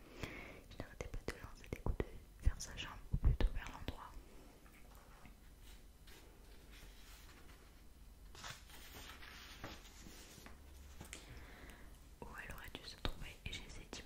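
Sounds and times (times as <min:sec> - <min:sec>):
book pages rustling: 0:05.0 - 0:11.2.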